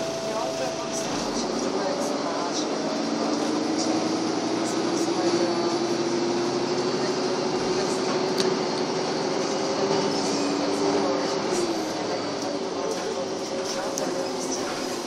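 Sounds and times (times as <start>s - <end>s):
bus drivetrain drone: 0.0s - 15.0s.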